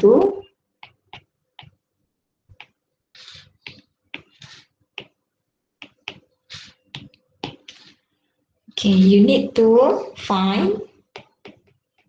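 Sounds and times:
stylus tapping on glass screen: 5.0 - 5.2, 5.8 - 6.3, 11.1 - 12.0.

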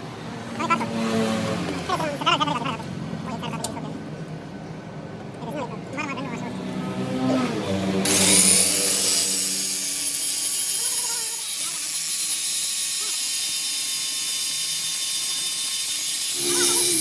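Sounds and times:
power tool running: 8.0 - 17.0.

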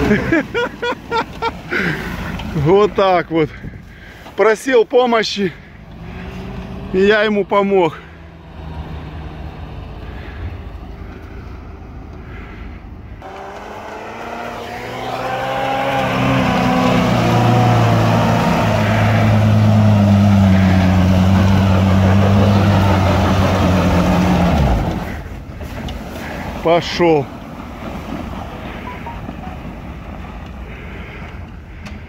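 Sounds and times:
engine revving: 5.7 - 11.2, 13.2 - 25.3.

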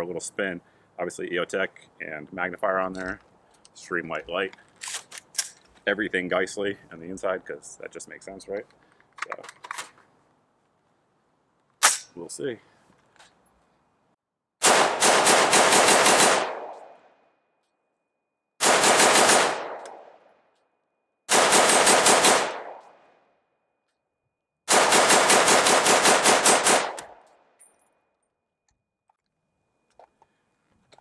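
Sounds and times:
rifle firing rapid shots: 14.6 - 16.9, 18.6 - 20.1, 21.3 - 22.8, 24.7 - 27.2.

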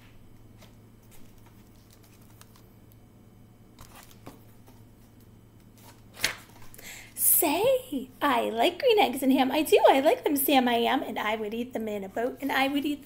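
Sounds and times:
low steady hum: 0.0 - 13.0
book pages turning: 0.4 - 2.7, 3.8 - 6.8.

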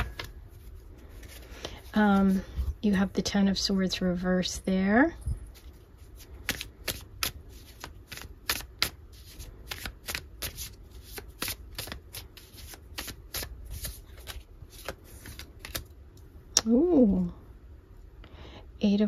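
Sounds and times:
cards flicking and tapping: 0.0 - 0.4, 6.4 - 15.9.

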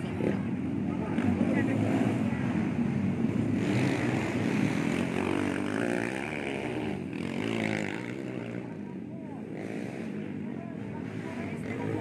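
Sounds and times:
dirt bike engine revving: 3.2 - 8.8.

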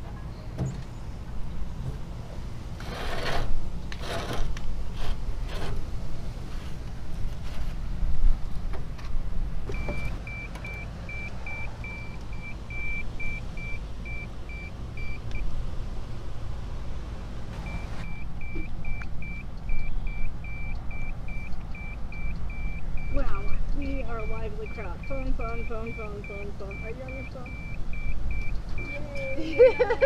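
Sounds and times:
thermometer short high beeps: 17.7 - 23.4, 24.2 - 29.4.

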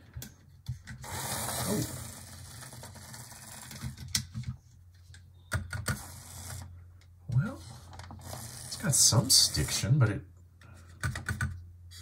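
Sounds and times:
model train motor whirring: 1.0 - 3.6, 8.2 - 8.8.

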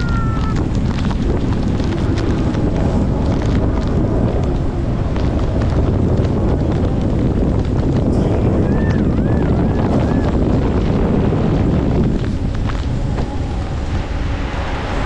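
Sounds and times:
raindrops striking: 0.0 - 14.1
wind rushing over microphone: 0.0 - 15.0.

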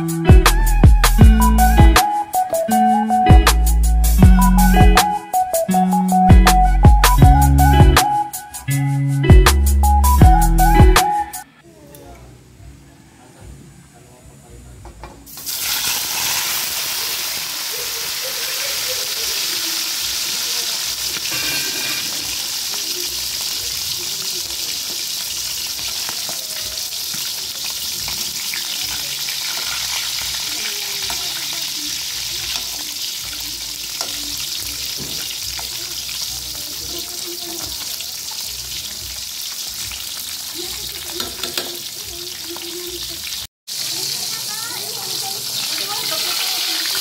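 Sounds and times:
fish sizzling in hot oil: 15.3 - 47.0
metal ladle scraping a pan: 21.2 - 22.4.

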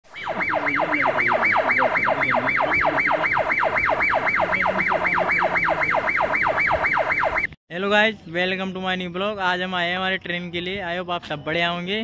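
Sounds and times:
electronic siren sweeping: 0.1 - 7.6.

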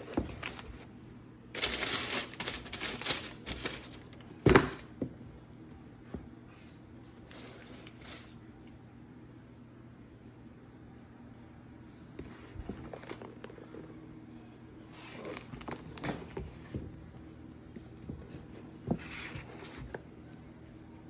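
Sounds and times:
steady low hum: 0.0 - 21.0
packing paper rustling: 1.6 - 4.3, 15.0 - 16.7.

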